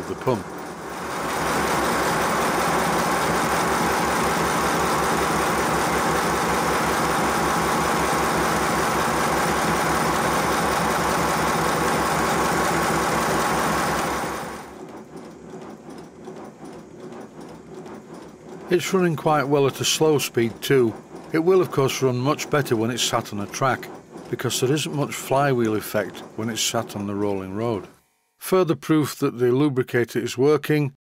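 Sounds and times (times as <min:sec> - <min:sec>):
model steam locomotive beat: 0:00.0 - 0:28.6.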